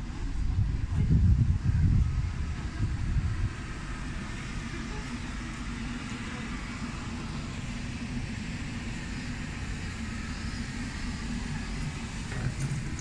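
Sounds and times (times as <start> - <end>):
road traffic hum: 0.0 - 13.0.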